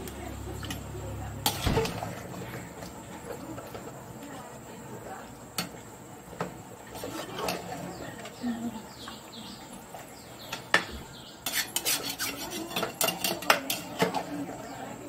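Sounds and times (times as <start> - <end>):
ladle scraping metal pot: 1.4 - 3.8, 6.8 - 8.3, 11.4 - 14.6
ladle clinking: 9.9 - 14.6.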